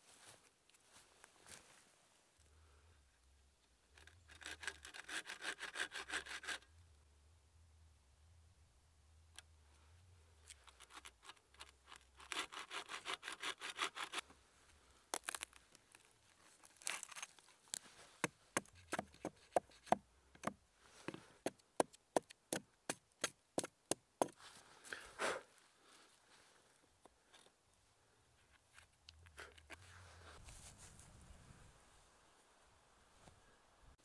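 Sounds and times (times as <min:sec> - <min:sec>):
handsaw cutting into log: 0:04.4 - 0:06.6, 0:12.2 - 0:14.2.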